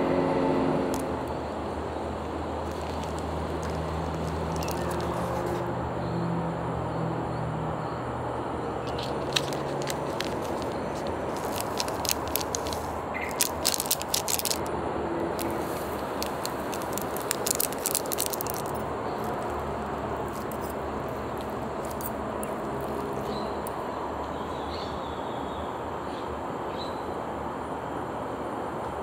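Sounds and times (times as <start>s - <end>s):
plastic packet crinkling: 2.6s - 5.6s, 8.8s - 14.7s, 15.3s - 23.8s.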